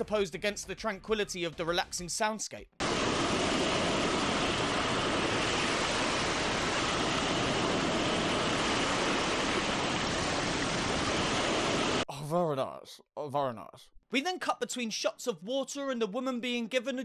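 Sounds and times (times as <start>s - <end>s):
ocean surf rushing: 2.8s - 12.0s.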